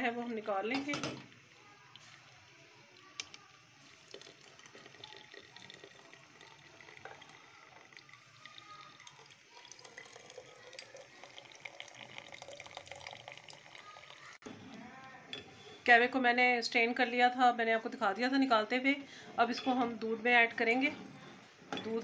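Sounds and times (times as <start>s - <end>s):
tea trickling into a glass: 3.8s - 14.4s.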